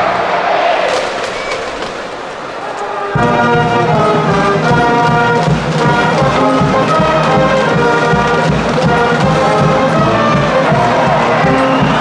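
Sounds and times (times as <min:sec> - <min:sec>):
brass band with sousaphones: 0:02.8 - 0:12.0.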